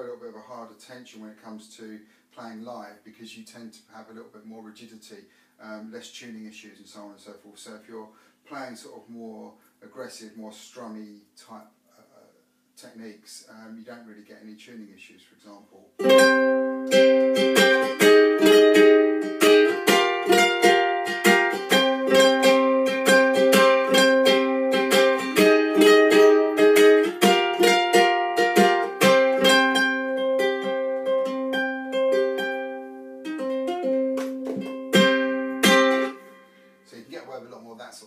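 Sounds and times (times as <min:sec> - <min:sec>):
electric ukulele strummed: 0:16.0 - 0:36.4.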